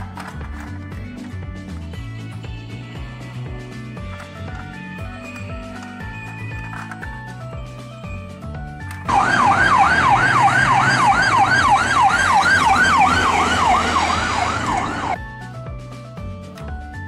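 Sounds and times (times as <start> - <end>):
ambulance siren yelping: 9.1 - 15.2.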